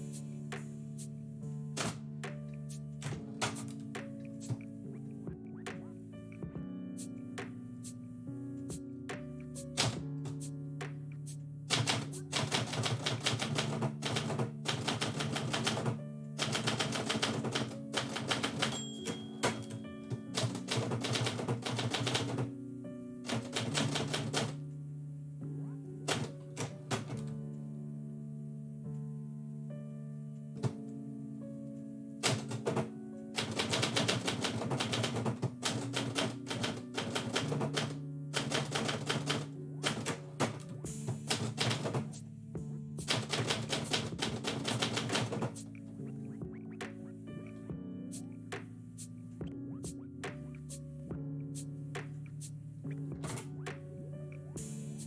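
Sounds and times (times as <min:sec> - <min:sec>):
background music with low tones: 0:00.0 - 0:55.0
typewriter keys striking: 0:03.0 - 0:03.8, 0:09.8 - 0:10.4, 0:11.7 - 0:22.5, 0:23.3 - 0:24.6, 0:26.1 - 0:27.3, 0:32.2 - 0:40.6, 0:41.2 - 0:42.1, 0:43.0 - 0:45.6.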